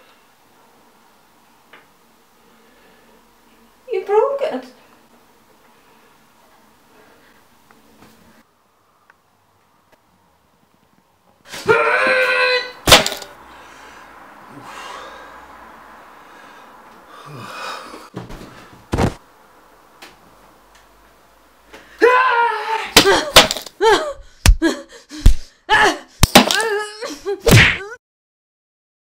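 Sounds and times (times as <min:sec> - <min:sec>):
high-pitched cries and gasps: 0:23.0 - 0:28.0.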